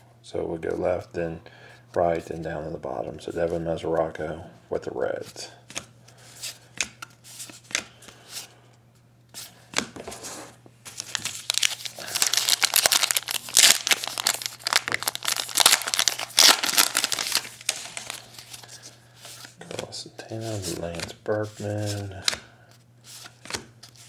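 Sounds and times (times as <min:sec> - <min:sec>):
card pack wrapper crinkling: 0:10.9 - 0:19.5.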